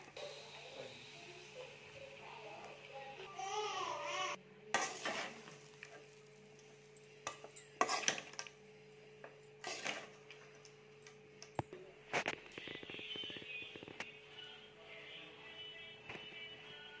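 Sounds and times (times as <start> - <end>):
spoon scraping metal pan: 4.8 - 5.6, 7.3 - 8.5, 9.6 - 10.2.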